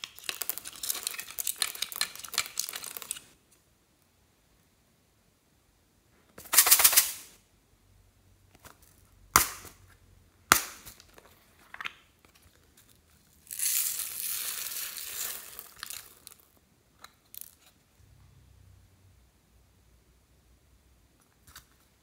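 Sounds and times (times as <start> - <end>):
beads pouring out rattling: 0.1 - 3.2, 13.4 - 16.5.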